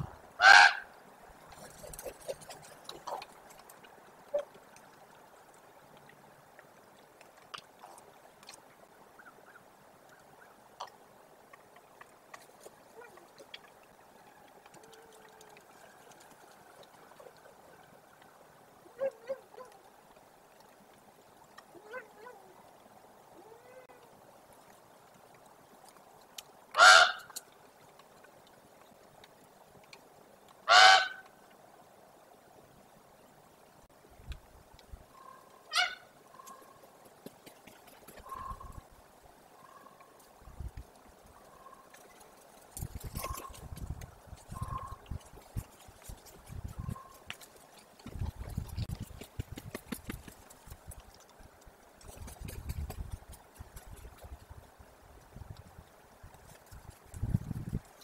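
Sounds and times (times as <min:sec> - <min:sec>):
raven calling harshly: 0:00.4 - 0:00.9, 0:26.8 - 0:27.3, 0:30.7 - 0:31.2, 0:35.2 - 0:36.1
raven croak: 0:30.7 - 0:31.2, 0:38.2 - 0:38.8.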